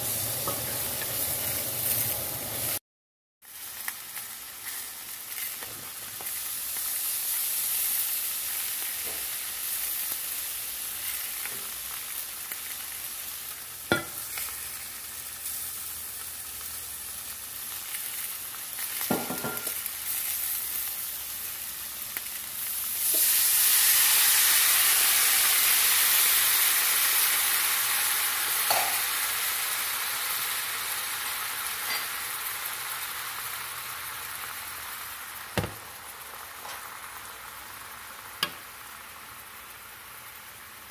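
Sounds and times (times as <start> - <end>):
food sizzling in a skillet: 0.0 - 2.8, 3.4 - 40.9
liquid hissing in hot pan: 17.9 - 40.9.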